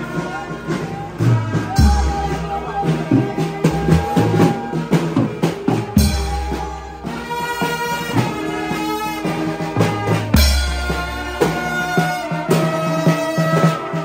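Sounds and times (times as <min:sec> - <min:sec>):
brass band horns: 0:00.0 - 0:14.0
cymbals: 0:00.0 - 0:14.0
snare drum: 0:00.7 - 0:14.0.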